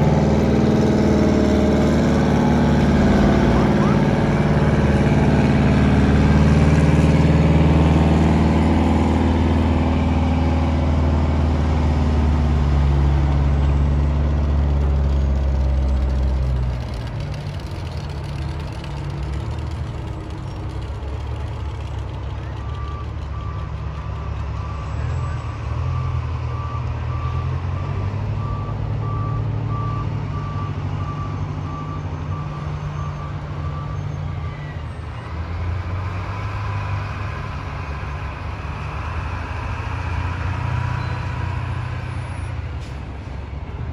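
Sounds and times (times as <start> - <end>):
truck engines droning: 0.0 - 43.9
reversing alarm beeping: 22.4 - 34.2.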